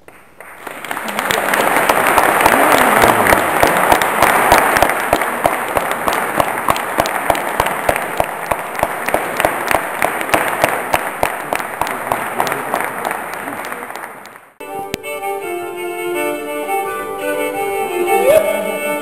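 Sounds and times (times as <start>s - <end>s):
audience applause: 0.0s - 14.6s
rhythmic clapping: 0.0s - 15.0s.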